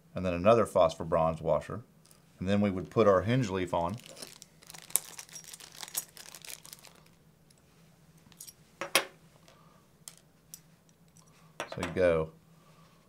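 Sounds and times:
metal parts clicking and clinking: 0:04.0 - 0:07.6, 0:08.2 - 0:12.0.

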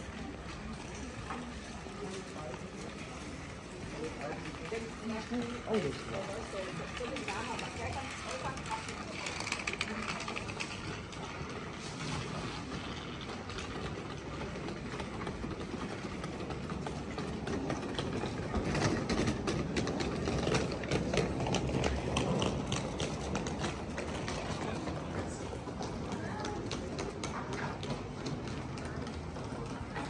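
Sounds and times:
town noise: 0:00.0 - 0:30.0
sharp clicks and clatter: 0:04.3 - 0:11.6.

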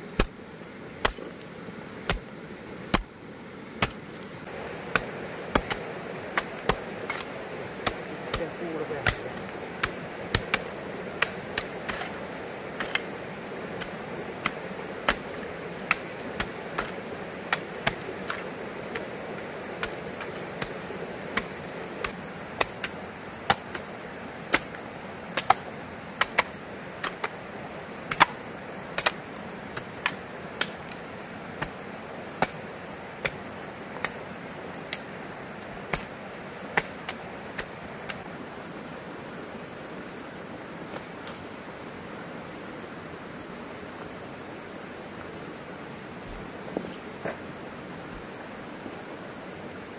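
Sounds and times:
hand tool chopping blows: 0:04.9 - 0:12.2, 0:28.1 - 0:28.4.

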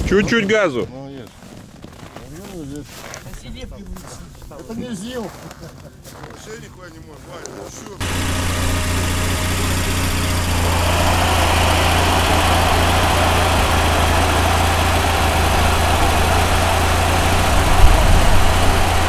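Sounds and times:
higher-pitched running noise: 0:08.0 - 0:19.0
vehicle engine humming: 0:08.0 - 0:19.0.

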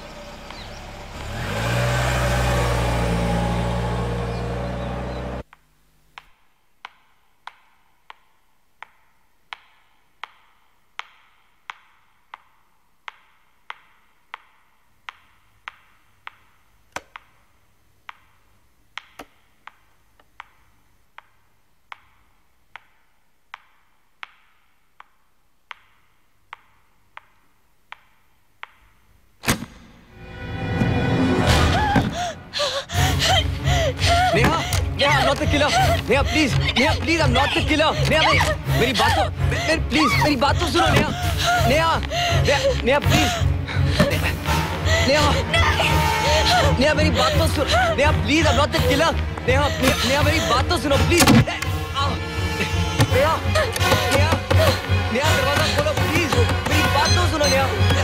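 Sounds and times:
jeep engine revving: 0:00.0 - 0:05.4.

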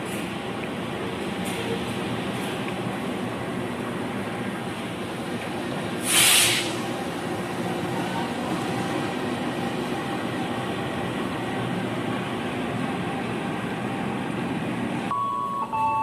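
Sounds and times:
locomotive engine drone: 0:00.0 - 0:16.0
compressed air hissing: 0:06.0 - 0:06.9.

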